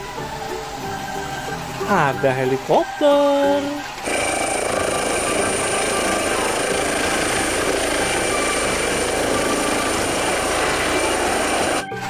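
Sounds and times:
high whine: 3.7s - 11.9s
helicopter rotor and engine: 4.0s - 11.8s.

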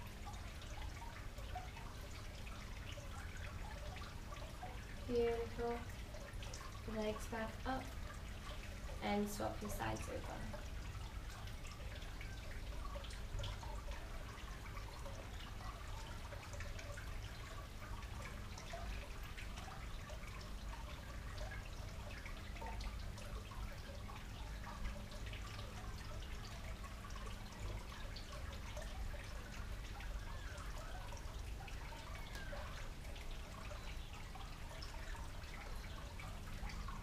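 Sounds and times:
garden fountain trickling: 0.0s - 37.0s
low steady hum: 0.0s - 37.0s.

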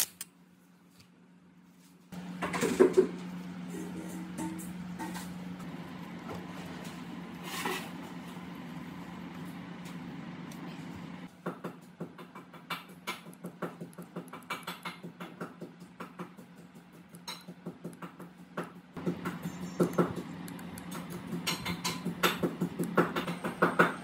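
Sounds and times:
steady low hum: 0.0s - 11.3s, 16.9s - 24.0s.

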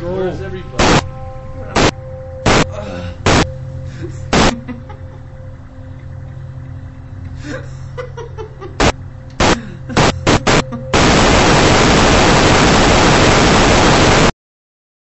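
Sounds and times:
static bursts and hiss: 0.7s - 3.7s, 4.3s - 4.7s, 8.7s - 14.3s.

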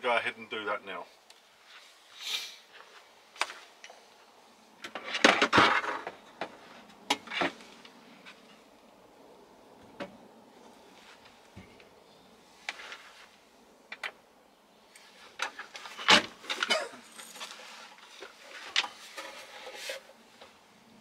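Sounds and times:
wood scraping shuffle: 10.6s - 11.8s, 12.5s - 13.5s, 15.0s - 20.6s.

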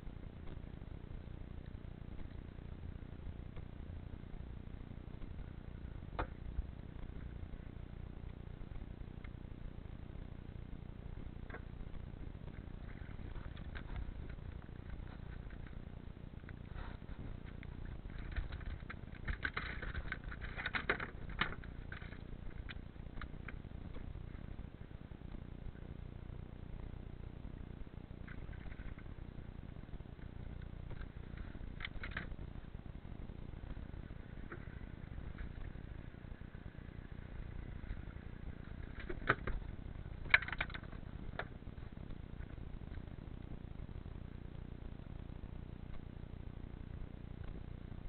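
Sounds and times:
low steady rumble: 0.0s - 48.0s
fishing gear clicks and rustles: 12.6s - 24.1s, 34.4s - 41.6s.

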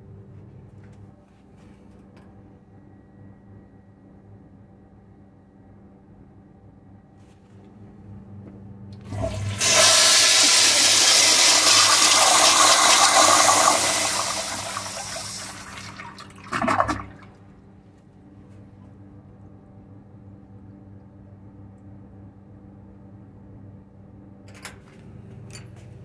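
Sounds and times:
toilet gurgle: 9.0s - 17.4s
water rushing down toilet bowl: 9.1s - 17.3s.

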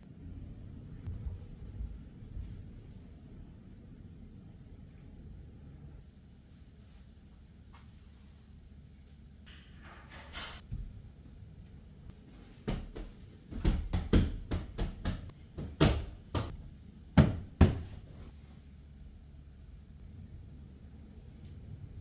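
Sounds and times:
hand patting sofa cushions: 17.2s - 18.2s.

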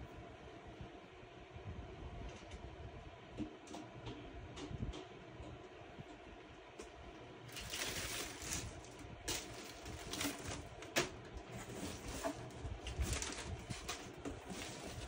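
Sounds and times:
plastic packaging crinkling: 7.5s - 15.0s.

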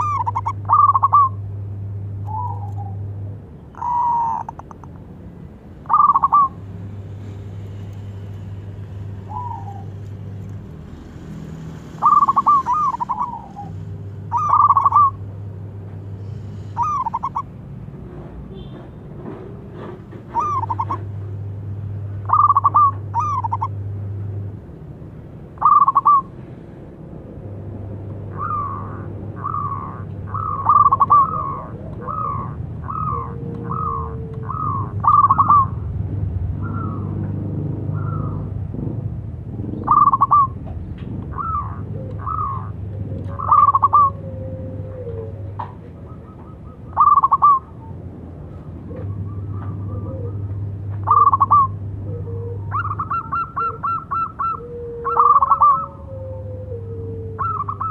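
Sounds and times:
dove cooing: 0.0s - 1.4s, 3.7s - 5.0s, 5.8s - 6.6s, 9.2s - 10.0s, 12.0s - 15.3s, 16.4s - 17.6s, 20.3s - 21.2s, 22.2s - 23.8s, 25.6s - 26.3s, 28.3s - 35.8s, 39.7s - 40.6s, 41.3s - 47.9s, 48.5s - 57.9s.

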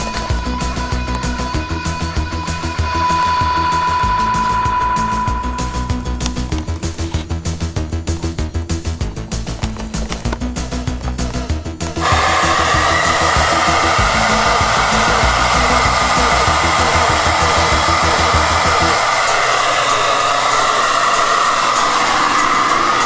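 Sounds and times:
low music beat: 0.0s - 9.7s, 10.4s - 19.8s
hair dryer running: 12.0s - 23.0s.

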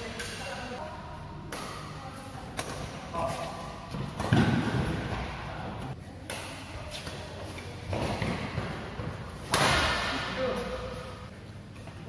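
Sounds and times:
rackets hitting shuttlecock: 1.5s - 5.3s, 9.4s - 10.8s.

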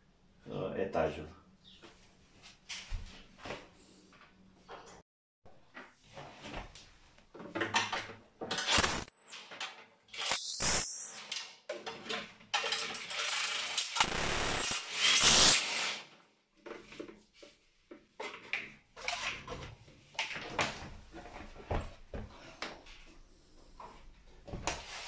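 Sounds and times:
cordless drill running: 13.1s - 16.0s.

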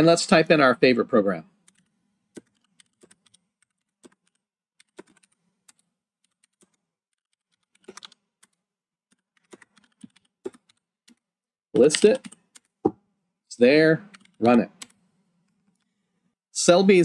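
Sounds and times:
keyboard typing: 1.6s - 12.9s, 14.0s - 15.9s.

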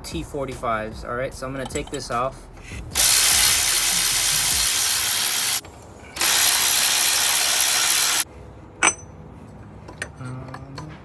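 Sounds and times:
cordless drill running: 3.0s - 5.6s, 6.2s - 8.2s
sharp metallic clink: 8.8s - 9.2s.

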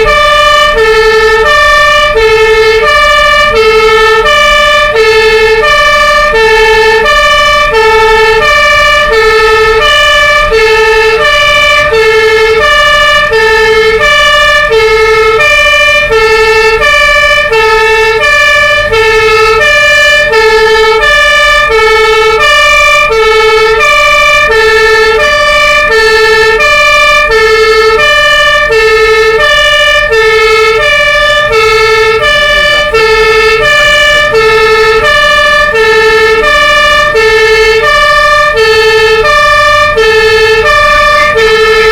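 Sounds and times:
fire engine two-tone siren: 0.0s - 41.9s
truck engine running: 0.0s - 41.9s.

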